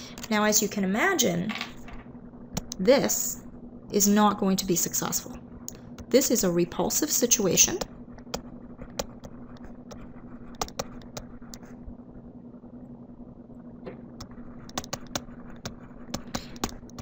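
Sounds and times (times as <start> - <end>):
low electrical hum: 0.0 - 17.0
stylus tapping on tablet: 2.6 - 2.8, 7.7 - 11.6, 14.2 - 17.0.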